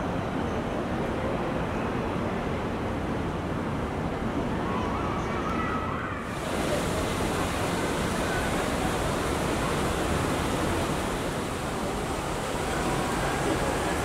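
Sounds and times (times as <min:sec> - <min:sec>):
steady rushing noise: 0:06.2 - 0:14.0.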